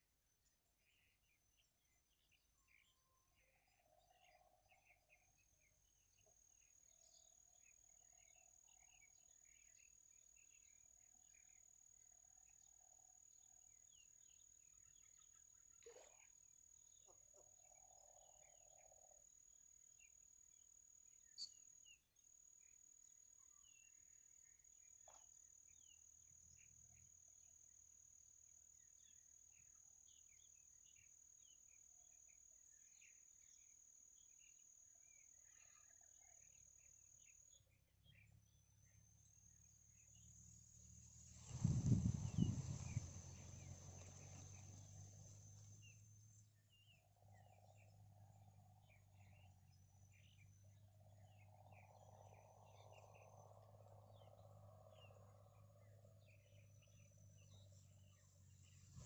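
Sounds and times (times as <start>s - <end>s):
faint chirps: 0.0s - 59.0s
high-pitched insect trill: 38.8s - 47.2s.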